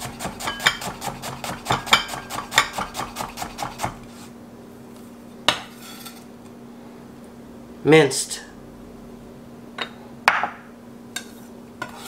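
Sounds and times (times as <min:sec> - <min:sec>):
knife chopping on wooden board: 0:00.0 - 0:04.0.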